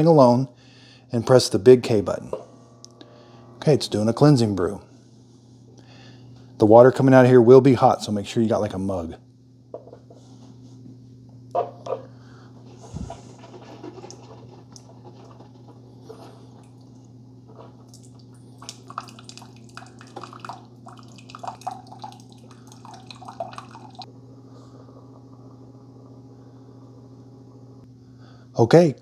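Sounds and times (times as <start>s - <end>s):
coffee maker low hum: 0.0s - 28.5s
water dripping into mug: 17.9s - 24.1s.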